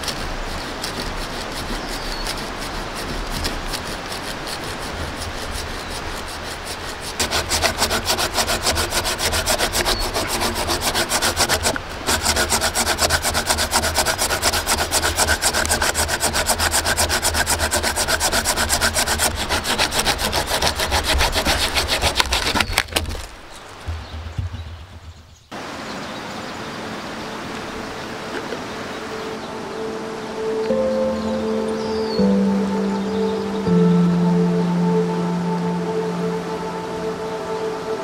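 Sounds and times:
hand saw cutting a log: 0.0s - 23.4s.

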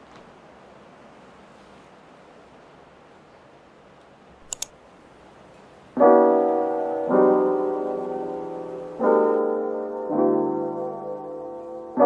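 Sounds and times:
quick clicks: 4.4s - 4.8s
soft piano music: 5.9s - 12.0s.

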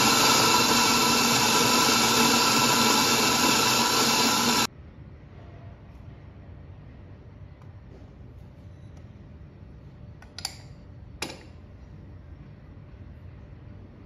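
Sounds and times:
coffee grinder motor whirring: 0.0s - 4.7s.

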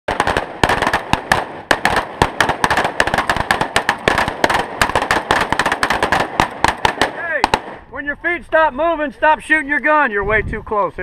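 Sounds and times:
rapid rifle gunfire: 0.1s - 7.8s.

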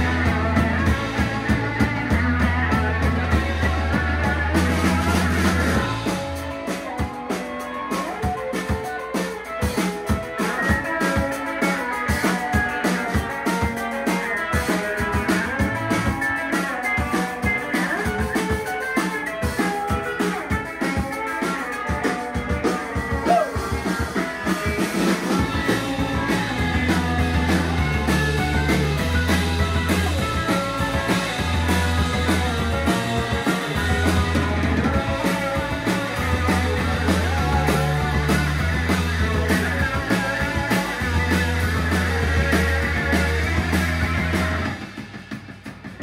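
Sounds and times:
bass low held notes: 0.0s - 6.4s, 25.4s - 44.8s
drum kit: 0.0s - 46.0s
electric guitars: 0.0s - 46.0s.

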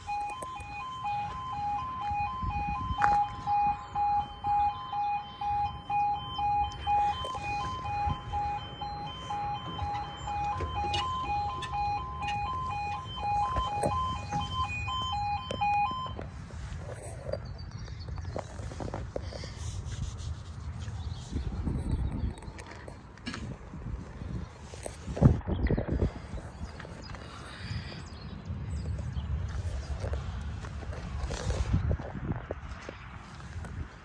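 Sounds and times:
two-tone level crossing alarm: 0.0s - 16.2s.

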